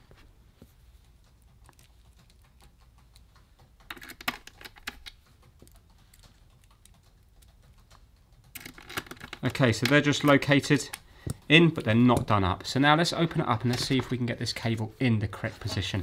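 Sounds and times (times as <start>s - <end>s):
screwdriver and screws clicking on metal: 1.3s - 12.3s.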